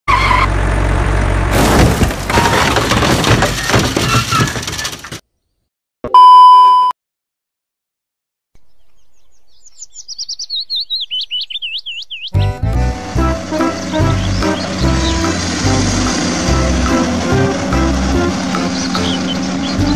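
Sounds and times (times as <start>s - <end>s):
test tone beep: 6.1s - 7.0s.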